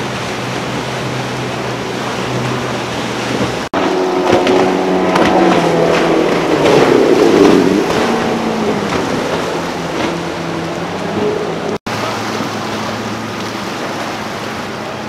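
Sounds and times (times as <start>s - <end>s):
boat wake wash: 0.0s - 15.0s
motorboat engine low hum: 0.0s - 15.0s
outboard motor running: 0.0s - 15.0s
water rushing under hull: 0.0s - 15.0s.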